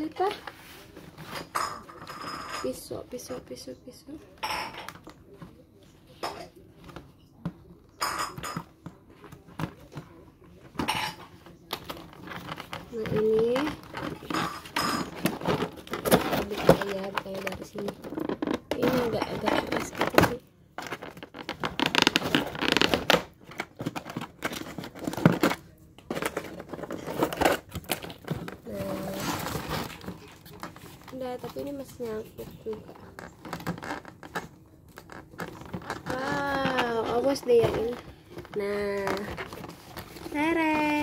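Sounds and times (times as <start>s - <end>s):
packaging rustling: 11.6s - 41.0s.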